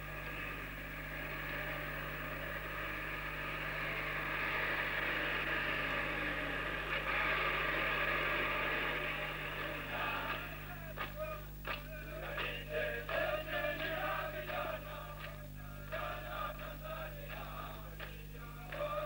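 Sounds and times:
bus engine running: 0.0 - 10.7
low electrical hum: 0.0 - 19.0.

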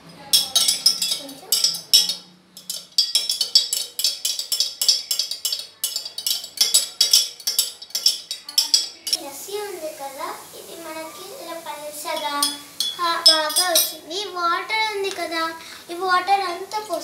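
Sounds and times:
metal spoon clinking on glass: 0.1 - 9.2, 12.1 - 14.0.

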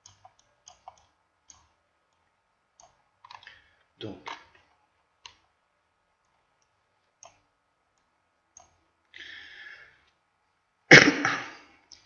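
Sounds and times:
computer mouse clicks: 0.0 - 3.6, 4.3 - 5.5, 6.2 - 8.8.

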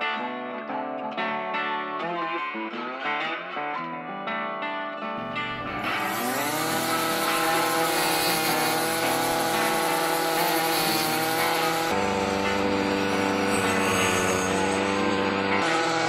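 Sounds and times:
string trimmer engine revving: 5.2 - 16.0.

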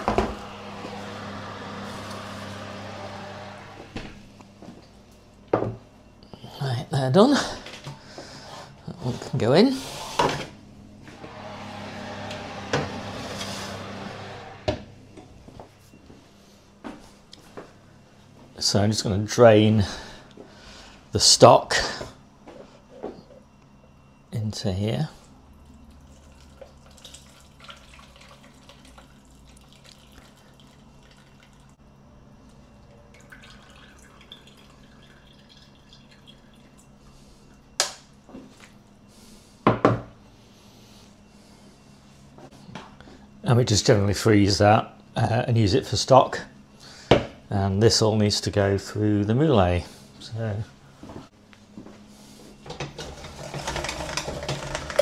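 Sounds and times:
liquid dripping and trickling: 25.6 - 31.8, 33.0 - 37.0.

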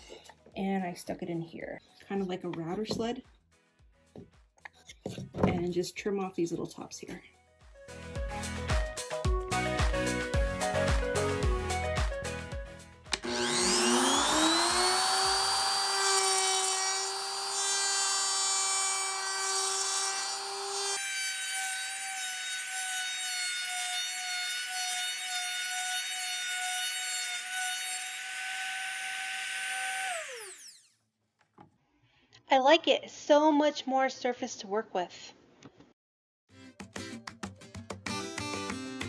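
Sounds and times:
trim router whining: 13.1 - 30.9.

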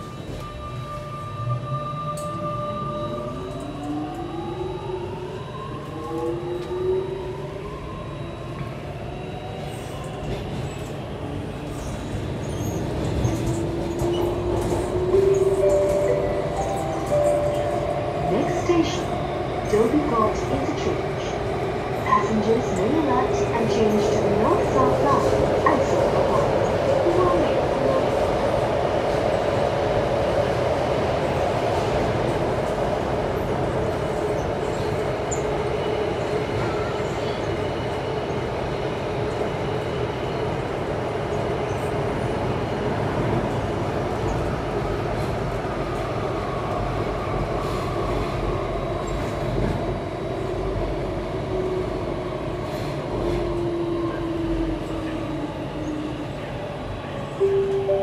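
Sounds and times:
train wheels rumbling on rail: 9.6 - 57.9
faint train whine: 13.4 - 21.4, 51.6 - 58.0.

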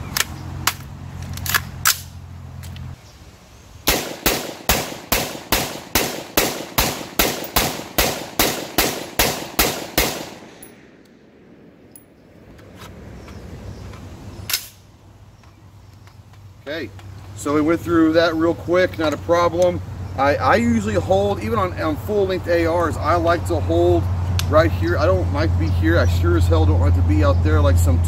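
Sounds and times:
rapid gunshots: 3.9 - 10.6.

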